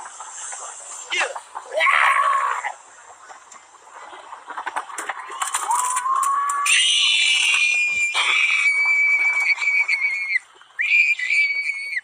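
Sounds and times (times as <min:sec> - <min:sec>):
high-pitched scream: 0:05.6 - 0:12.0.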